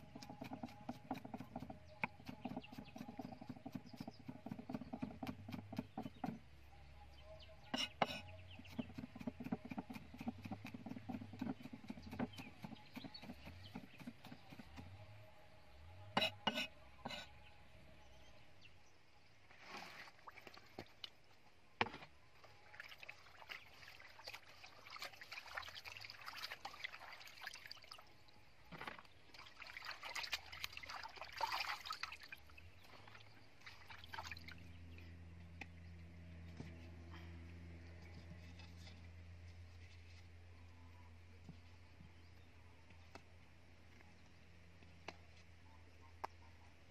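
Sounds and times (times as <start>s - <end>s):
cleaver chopping on wooden block: 0.2s - 6.4s, 7.8s - 15.0s.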